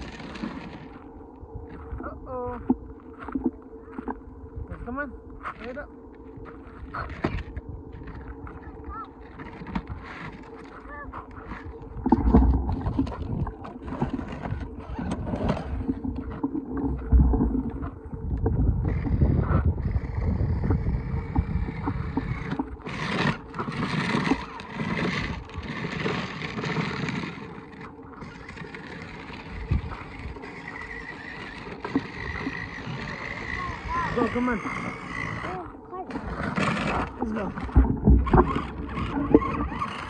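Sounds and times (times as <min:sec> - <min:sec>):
plastic wheels crunching gravel: 0:00.0 - 0:01.1, 0:05.4 - 0:18.0, 0:20.8 - 0:40.0
small electric motor whining: 0:18.8 - 0:40.0.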